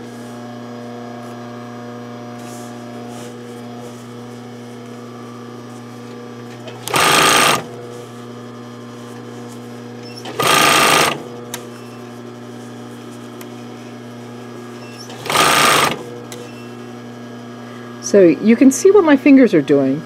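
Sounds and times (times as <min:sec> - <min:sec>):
steady low hum: 0:00.0 - 0:20.0
sewing machine stitching: 0:06.6 - 0:07.7, 0:10.1 - 0:11.6, 0:14.9 - 0:16.7.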